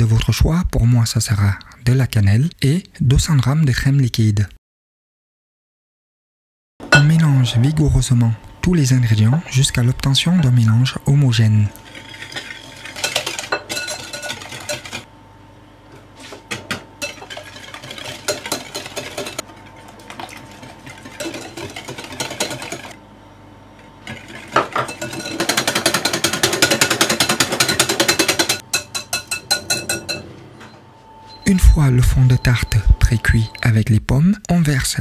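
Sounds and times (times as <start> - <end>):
whisk clicking against glass bowl: 24.9 - 30.1.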